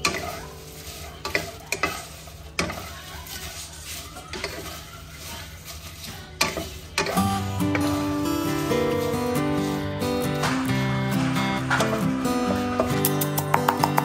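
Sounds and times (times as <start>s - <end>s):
acoustic guitar music: 0.0s - 2.1s, 7.0s - 14.0s
light sizzle: 0.0s - 13.3s
wooden spatula scraping a wok: 0.0s - 13.7s.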